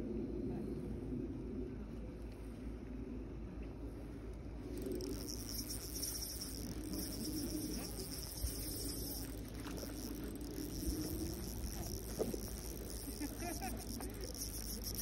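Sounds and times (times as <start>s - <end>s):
fishing reel buzzing: 4.7s - 15.0s.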